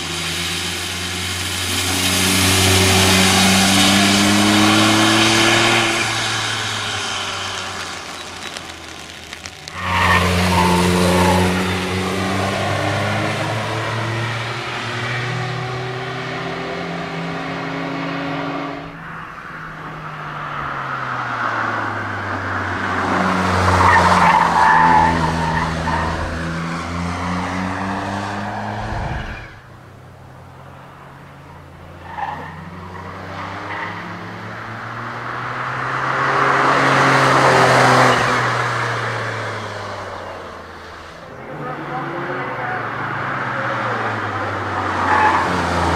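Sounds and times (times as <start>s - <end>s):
car engine revving hard: 1.6s - 7.4s
tyres squealing: 5.5s - 11.6s.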